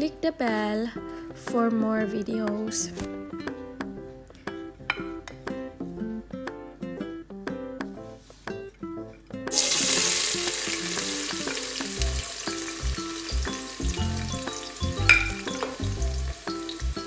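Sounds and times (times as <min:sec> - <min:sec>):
onion sizzling in hot oil: 0:09.5 - 0:17.0.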